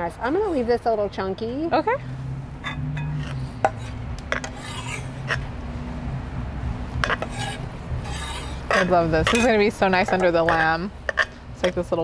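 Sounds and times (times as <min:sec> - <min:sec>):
steady low hum: 0:00.0 - 0:12.0
knife scraping food into bowl: 0:02.6 - 0:05.5, 0:07.0 - 0:11.4
metal spoon scraping stone bowl: 0:02.6 - 0:05.5, 0:07.0 - 0:11.9.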